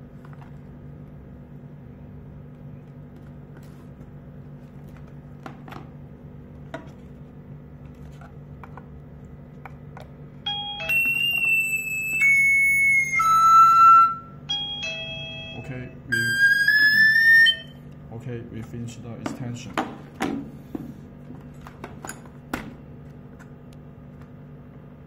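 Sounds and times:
steady low hum: 0.0 - 25.0
electronic chime ringtone: 10.5 - 17.8.

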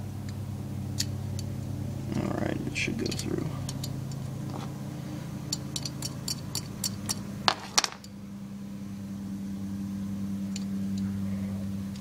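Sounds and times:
steady low hum: 0.0 - 12.0
small metallic clicks and ticks: 1.0 - 1.5, 3.0 - 4.7, 5.5 - 7.2, 10.5 - 11.1.

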